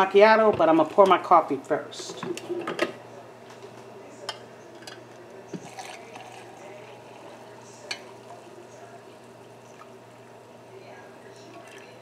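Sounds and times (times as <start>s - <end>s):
coffee pouring into mug: 5.4s - 12.0s.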